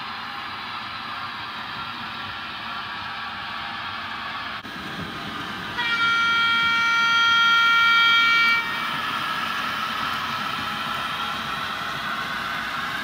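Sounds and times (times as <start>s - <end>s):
model train running on track: 0.0s - 13.0s
model train horn chord: 5.8s - 9.0s.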